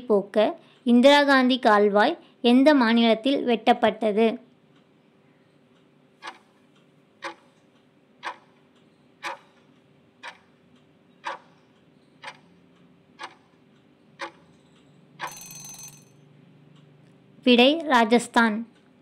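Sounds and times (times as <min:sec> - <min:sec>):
faint steady hum: 0:00.0 - 0:19.0
timer ticking: 0:05.7 - 0:17.0
bright ringing sound: 0:15.2 - 0:16.3.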